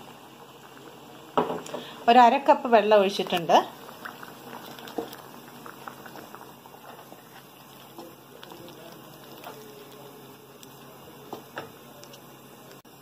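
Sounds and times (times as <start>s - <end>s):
curry simmering in a pan: 0.0s - 13.0s
spatula stirring: 2.9s - 12.3s.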